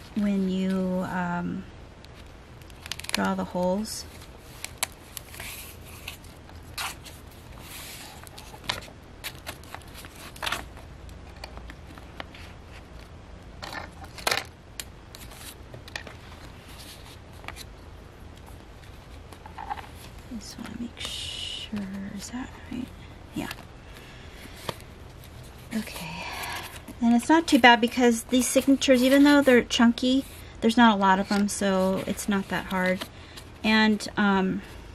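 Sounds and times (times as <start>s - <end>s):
paper pages rustling: 2.1s - 3.3s, 4.0s - 14.5s, 15.1s - 21.1s.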